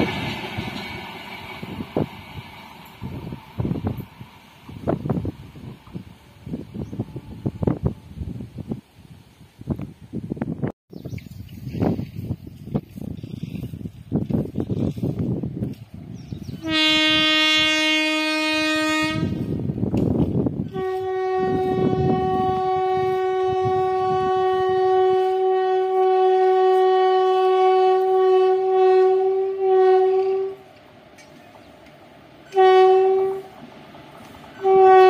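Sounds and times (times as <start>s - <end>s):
train horn blasts: 16.5s - 19.7s, 20.6s - 30.7s, 32.4s - 33.6s, 34.6s - 35.0s.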